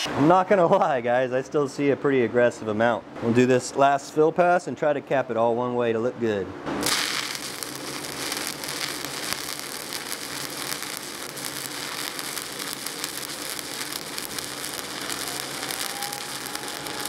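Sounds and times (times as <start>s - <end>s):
welding arc crackling: 6.8s - 17.0s.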